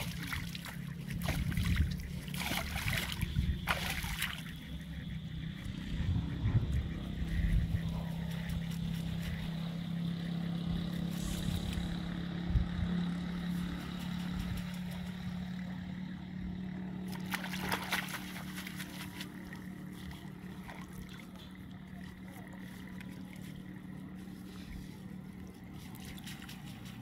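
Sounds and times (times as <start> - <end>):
water sloshing and splashing: 0.0 - 5.0, 17.0 - 27.0
engine humming: 0.0 - 27.0.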